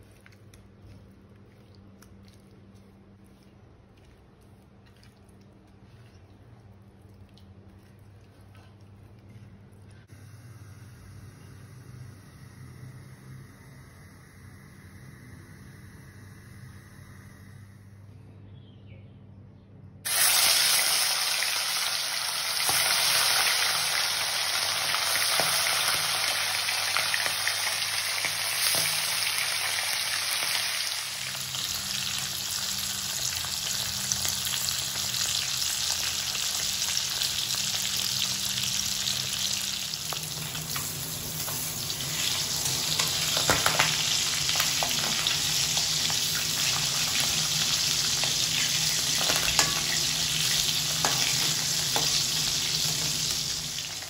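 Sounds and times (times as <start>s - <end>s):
fish frying in oil: 20.1s - 54.0s.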